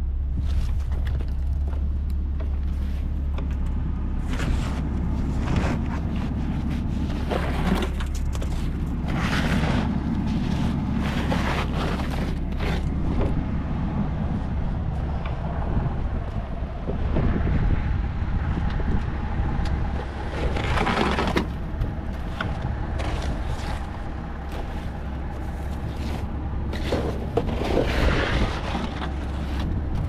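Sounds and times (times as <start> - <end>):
wind buffeting microphone: 3.4 - 30.0
short rushing scraping sounds: 4.2 - 13.3.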